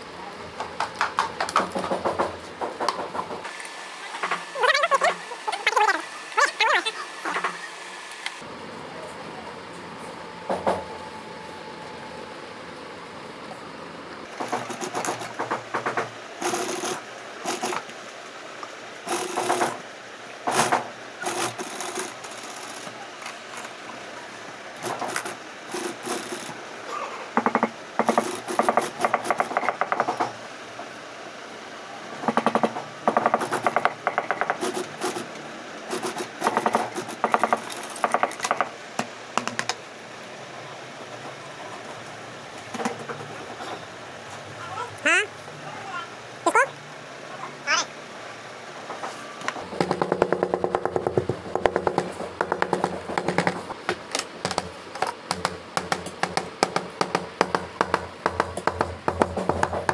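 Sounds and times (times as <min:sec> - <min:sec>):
sewing machine stitching: 0:14.3 - 0:17.8, 0:19.1 - 0:19.8, 0:20.5 - 0:23.0, 0:24.8 - 0:26.6, 0:35.9 - 0:38.5.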